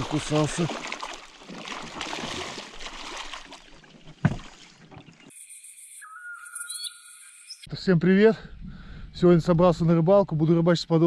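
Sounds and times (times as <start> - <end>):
water splashing around boat: 0.0 - 5.4.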